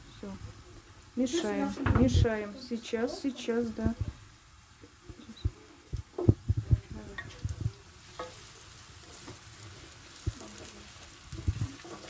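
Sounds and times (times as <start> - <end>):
vegetables sizzling in oil: 0.0 - 12.0
spatula scraping pan: 7.2 - 12.0.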